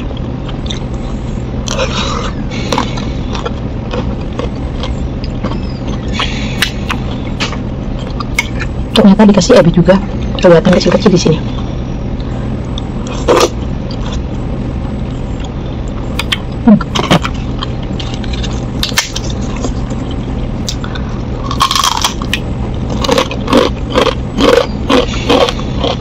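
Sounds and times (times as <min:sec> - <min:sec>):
cracker crunching: 0:00.0 - 0:08.8, 0:11.5 - 0:26.0
steady low hum: 0:00.0 - 0:26.0
chewing: 0:00.1 - 0:07.3, 0:16.2 - 0:26.0.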